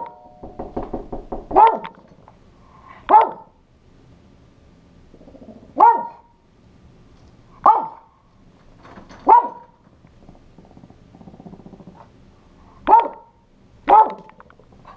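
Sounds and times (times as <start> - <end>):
small dog barking: 1.6 - 2.0, 3.1 - 3.6, 5.8 - 6.3, 7.6 - 8.1, 9.2 - 9.8, 12.8 - 14.4.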